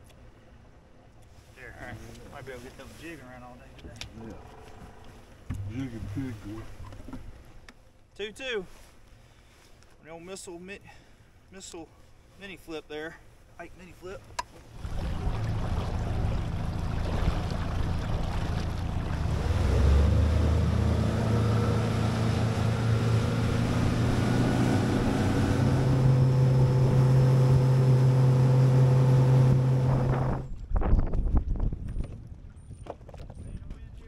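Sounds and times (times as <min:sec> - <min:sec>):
outboard motor running: 0:04.1 - 0:07.4, 0:14.5 - 0:30.4
water rushing past hull: 0:04.2 - 0:07.6, 0:14.2 - 0:30.5
wind buffeting microphone: 0:29.4 - 0:34.0.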